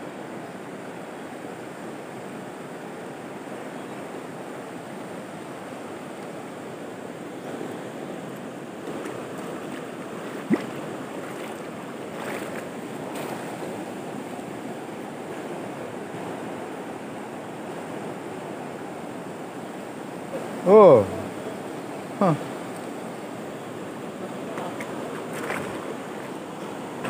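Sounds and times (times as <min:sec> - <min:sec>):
river rushing over stones: 0:00.0 - 0:27.0.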